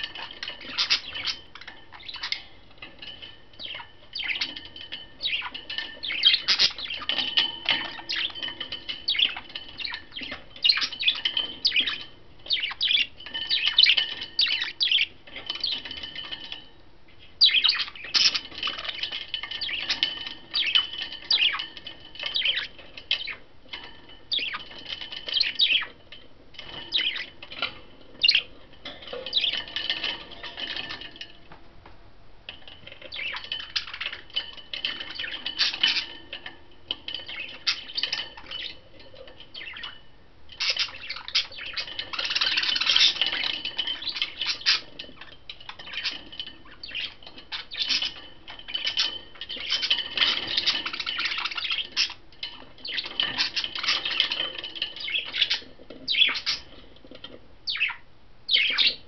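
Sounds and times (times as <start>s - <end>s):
budgerigars chirping: 0.0s - 2.5s, 3.6s - 16.5s, 17.4s - 23.4s, 24.3s - 26.0s, 26.6s - 28.5s, 29.2s - 31.0s, 33.1s - 34.2s, 34.9s - 36.2s, 39.5s - 40.0s, 40.6s - 56.8s, 57.6s - 59.0s.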